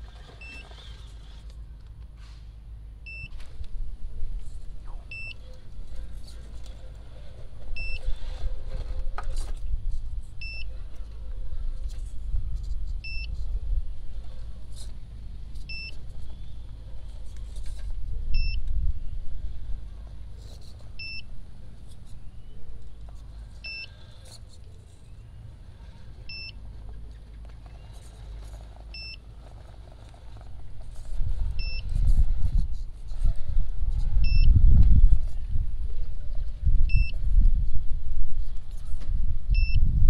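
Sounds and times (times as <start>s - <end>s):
short electronic beep: 3.0s - 3.4s, 7.8s - 8.0s, 10.4s - 10.7s, 18.3s - 18.6s, 31.6s - 31.8s, 34.2s - 34.5s, 39.6s - 39.8s.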